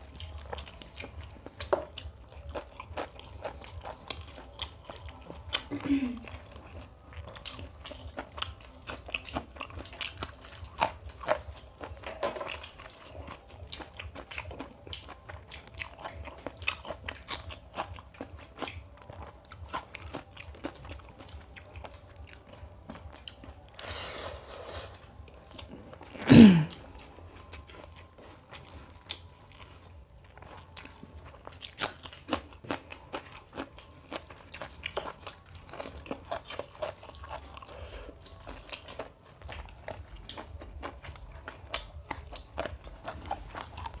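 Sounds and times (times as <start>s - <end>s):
wet chewing and lip smacks: 0.0s - 5.7s, 6.3s - 23.8s, 26.8s - 44.0s.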